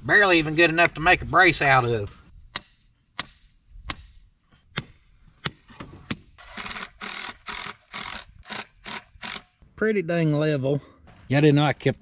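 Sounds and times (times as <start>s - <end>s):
cordless drill driving screw: 6.4s - 9.6s.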